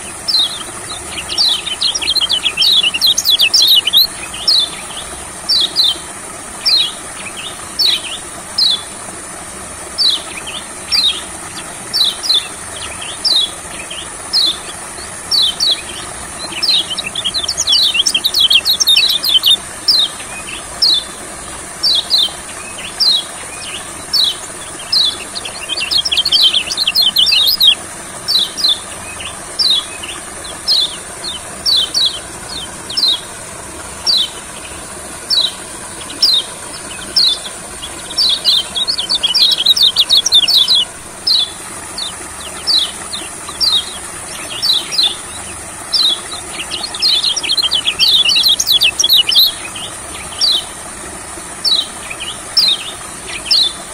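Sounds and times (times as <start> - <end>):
bird singing high chirps: 0.0 - 6.0, 11.9 - 21.1, 21.8 - 33.3, 35.3 - 50.7.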